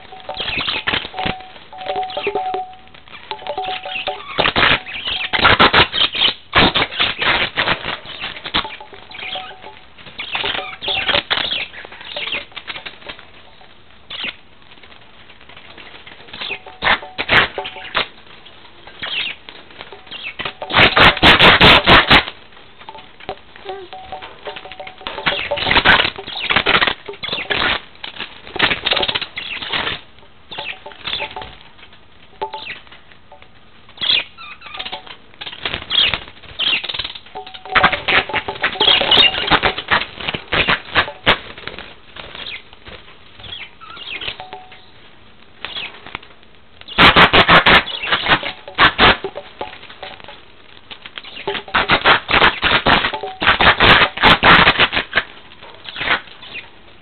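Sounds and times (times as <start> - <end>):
budgerigars chirping: 0.0 - 2.4, 8.1 - 12.5, 22.9 - 27.8, 28.6 - 31.6
budgies flapping and scrabbling: 0.0 - 44.9, 45.6 - 56.8.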